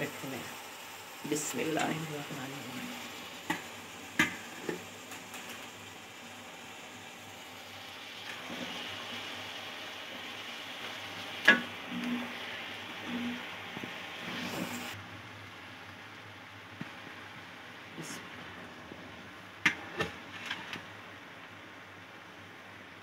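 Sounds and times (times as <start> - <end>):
vegetables sizzling in pot: 0.0 - 15.0.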